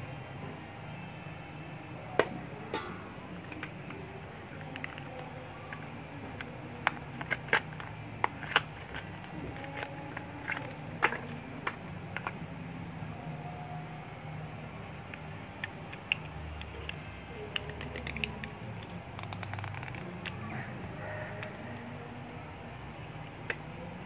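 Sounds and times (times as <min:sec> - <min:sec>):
metal spoon tapping steel basin: 0:02.2 - 0:03.7
medicine packet crinkling: 0:15.9 - 0:20.4.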